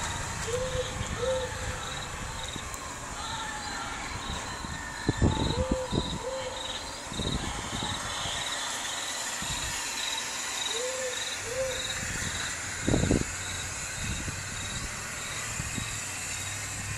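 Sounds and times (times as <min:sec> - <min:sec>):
crickets chirping: 0:00.0 - 0:16.9
owl hooting: 0:00.4 - 0:02.6, 0:05.2 - 0:08.6, 0:10.0 - 0:12.8.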